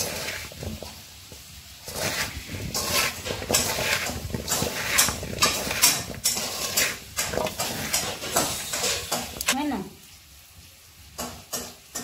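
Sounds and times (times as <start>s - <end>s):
food rustling and scraping in metal pot: 0.0s - 9.6s.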